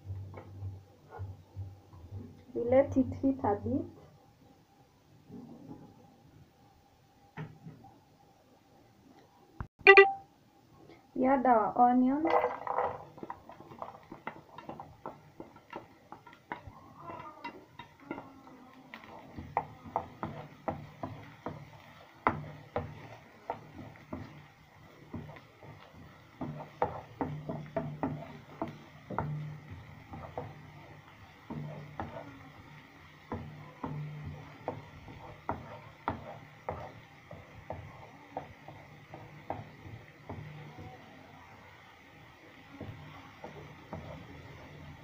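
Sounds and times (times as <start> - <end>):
onion sizzling in hot oil: 0.0 - 4.0, 11.2 - 45.0
spatula knocking against pan: 13.2 - 18.3, 18.9 - 40.9.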